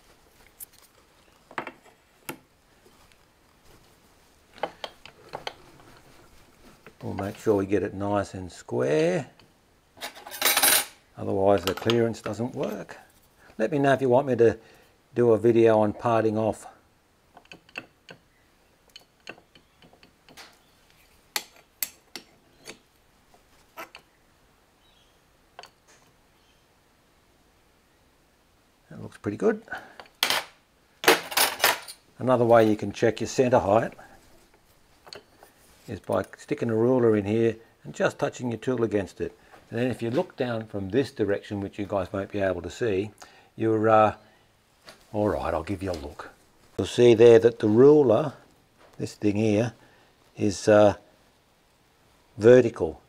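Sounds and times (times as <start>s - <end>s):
light metallic clicks and taps: 18.9s - 20.6s.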